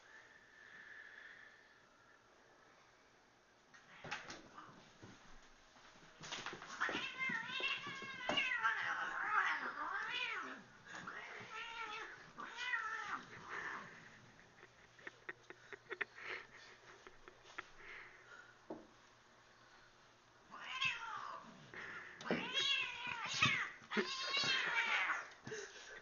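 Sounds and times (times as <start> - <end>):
cats yowling and screeching: 6.8 - 14.0, 20.5 - 25.4.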